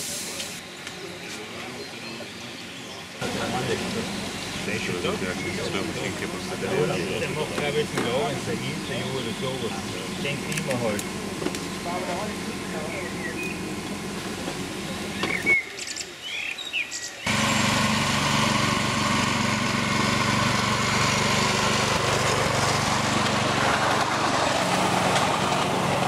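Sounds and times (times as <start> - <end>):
birds chirping: 0.6 - 14.1, 14.8 - 17.8
small engine running: 3.2 - 15.5, 17.3 - 26.0.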